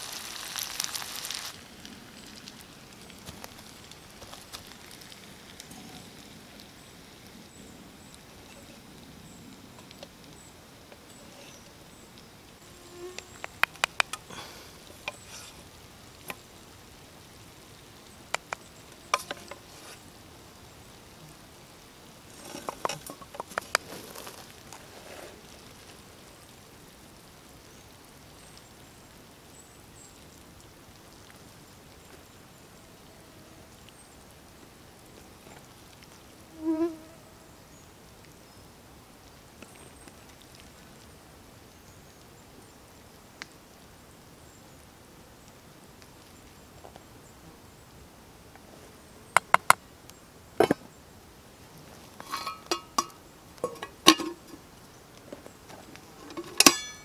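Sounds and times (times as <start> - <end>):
insect buzz: 10.4 - 16.5, 18.3 - 20.1, 36.4 - 37.8
wooden spoon knocking on pots: 52.3 - 54.6.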